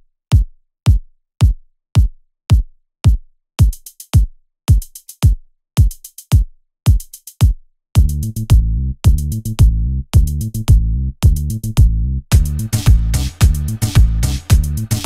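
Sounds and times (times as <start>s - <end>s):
deep kick drum: 0.3s - 15.0s
high hi-hat ticks: 3.6s - 8.4s, 12.3s - 15.0s.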